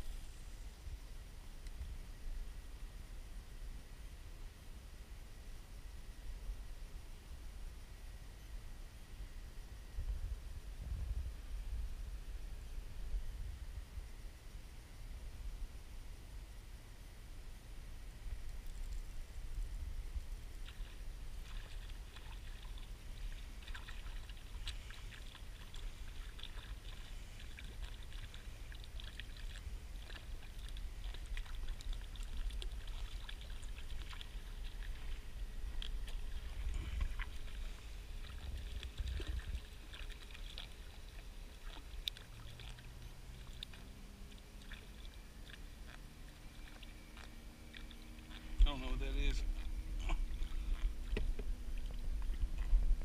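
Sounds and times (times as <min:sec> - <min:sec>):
steady low rumble: 0:00.0 - 0:53.0
light crackles and clicks: 0:18.3 - 0:21.0
water splashing and sloshing: 0:18.4 - 0:53.0.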